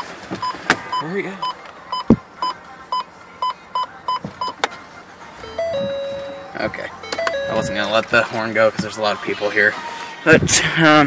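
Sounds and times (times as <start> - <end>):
car alarm beeping: 0.0 - 8.8
short stepped tone: 5.4 - 7.9.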